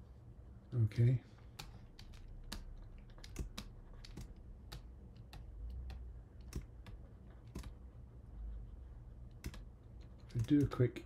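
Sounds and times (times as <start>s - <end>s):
steady low hum: 0.0s - 11.0s
computer keyboard keys clicking: 1.5s - 7.8s, 9.3s - 10.8s.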